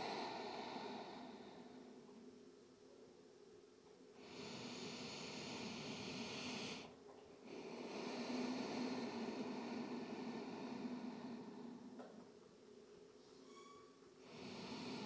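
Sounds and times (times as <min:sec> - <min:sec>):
person breathing through the nose: 0:00.0 - 0:01.9, 0:04.2 - 0:11.9.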